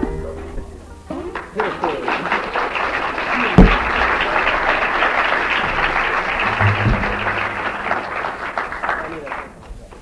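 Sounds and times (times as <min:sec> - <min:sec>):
audience applauding: 0:01.3 - 0:10.0
short low note: 0:06.4 - 0:08.1.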